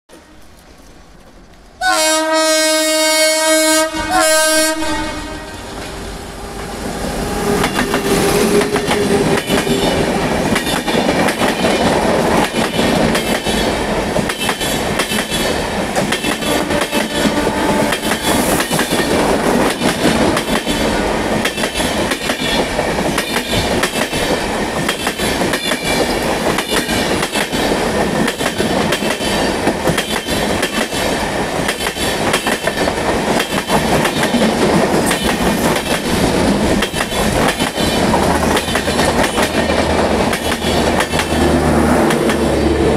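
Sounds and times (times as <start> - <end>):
train rushing past: 0.1 - 42.9
train horn blasts: 1.8 - 6.6, 16.3 - 18.5
train wheels clickety-clack: 7.4 - 42.9.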